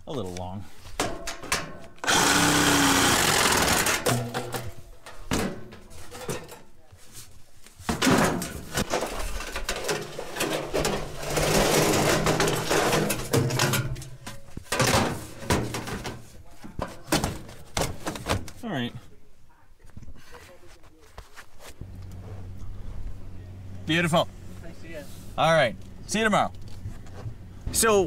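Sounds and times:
metal duct clattering: 1.0s - 6.7s, 7.8s - 18.6s
reciprocating saw cutting sheet metal: 2.0s - 4.3s.

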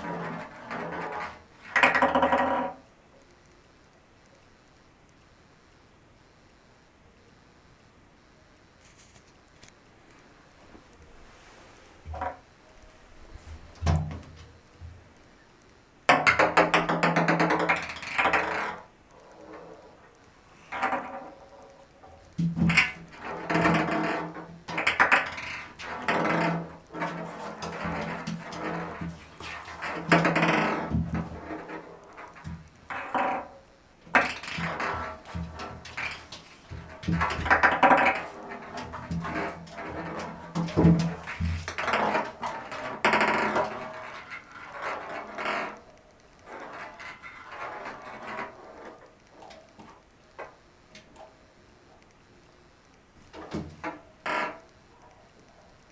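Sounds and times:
ping-pong ball rattling in bathtub: 0.0s - 2.8s, 16.1s - 18.9s, 22.1s - 45.8s
ping pong ball bouncing in bathtub: 16.1s - 18.8s.

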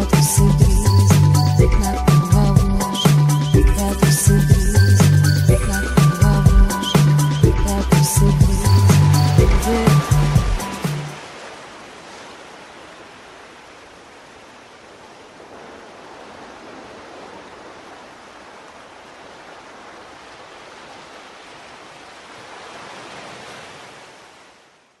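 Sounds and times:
sea waves washing on shore: 6.7s - 25.0s.

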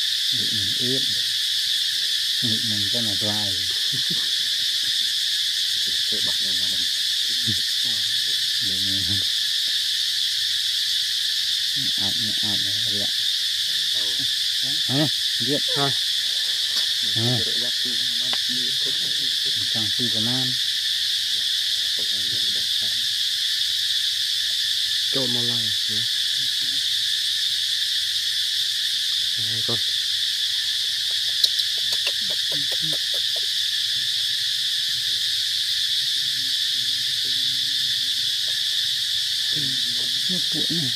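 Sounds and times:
insects droning: 0.0s - 40.9s
people talking: 0.3s - 1.3s, 2.4s - 5.1s, 5.9s - 9.3s, 11.8s - 13.1s, 13.7s - 16.0s, 17.0s - 20.6s, 22.0s - 23.1s, 25.2s - 26.8s, 29.4s - 29.9s, 31.4s - 33.4s, 36.0s - 38.4s, 39.5s - 40.9s.

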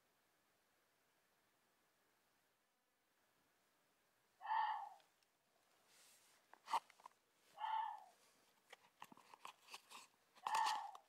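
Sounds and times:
animal calling: 4.4s - 5.1s, 7.5s - 8.2s, 10.4s - 11.0s.

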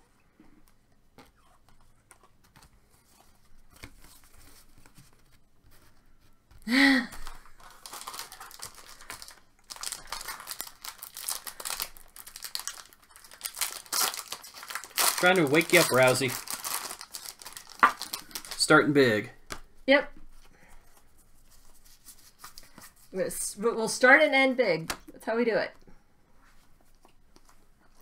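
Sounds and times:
wrapper tearing and crinkling: 7.5s - 19.0s.

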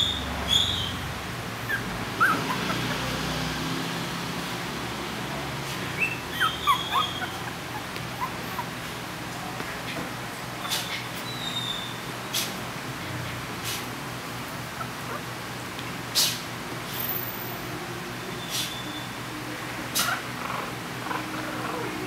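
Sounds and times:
puppies squeaking and whimpering: 0.0s - 3.8s, 5.8s - 8.9s, 10.6s - 12.1s, 14.7s - 15.3s, 19.9s - 22.0s.

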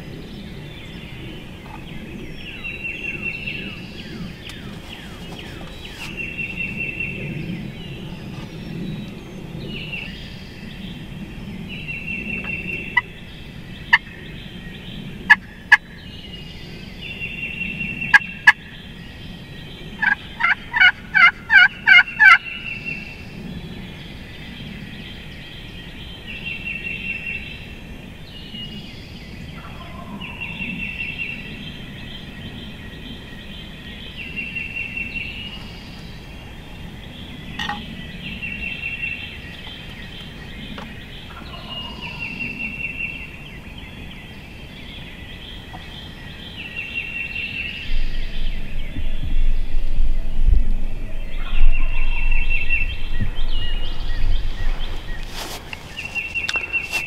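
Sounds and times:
turkey gobbling: 20.0s - 22.4s.

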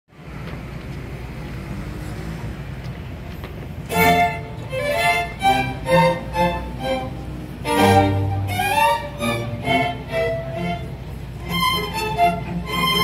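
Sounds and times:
low steady background noise: 0.1s - 13.0s
string orchestra bowed chords: 3.8s - 13.0s.

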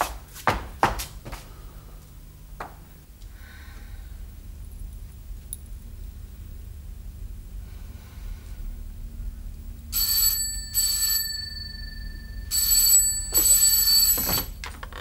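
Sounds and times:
desk telephone ringing: 10.0s - 15.0s.

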